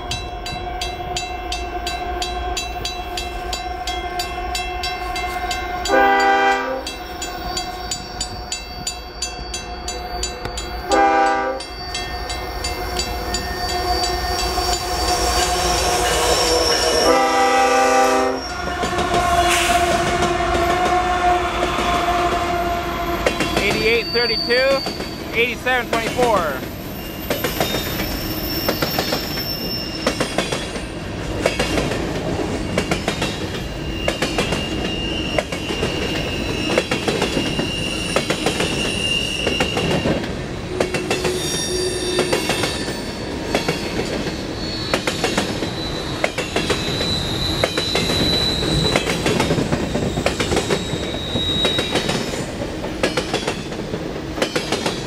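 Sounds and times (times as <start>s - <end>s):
high wheel squeals: 6.8s - 25.4s, 26.4s - 31.0s, 32.6s - 52.6s
train wheels clicking over rail joints: 27.2s - 41.4s, 43.4s - 55.0s.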